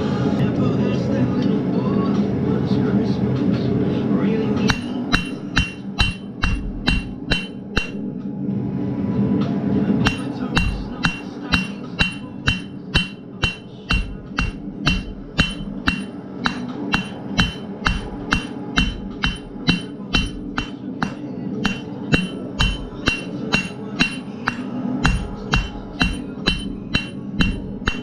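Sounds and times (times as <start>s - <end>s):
hammer striking steel on anvil: 4.6s - 8.3s, 10.0s - 28.0s.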